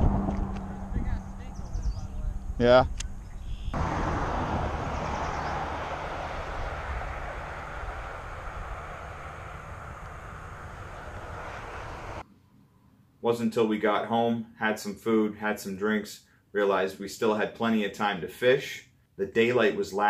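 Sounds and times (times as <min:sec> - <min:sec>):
vehicle roaring past: 0:00.0 - 0:02.6, 0:03.7 - 0:12.2.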